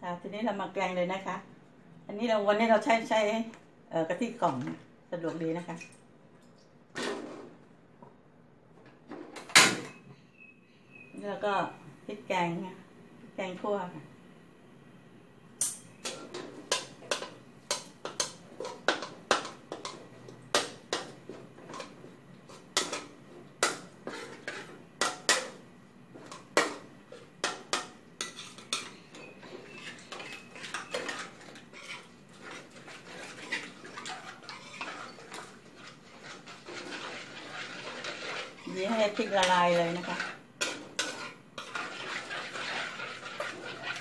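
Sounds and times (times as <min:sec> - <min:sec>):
spatula clacking and scraping a wok: 0:15.6 - 0:44.0.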